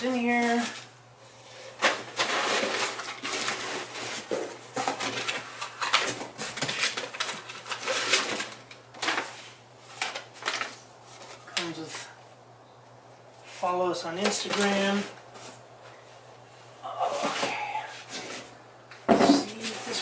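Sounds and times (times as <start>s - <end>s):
packing paper rustling and crinkling: 1.5s - 12.2s, 14.2s - 15.6s.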